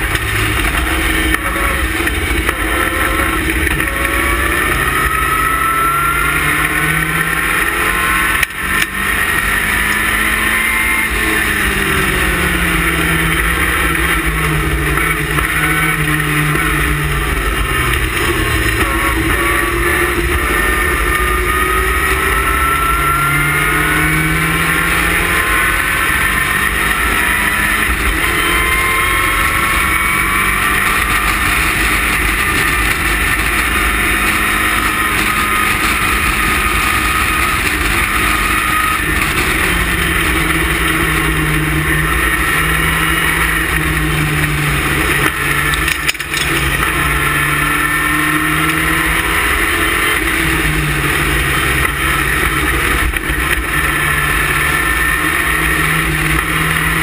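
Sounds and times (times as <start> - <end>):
heavy rushing noise: 0.0 - 57.0
race car engine running hard: 0.0 - 57.0.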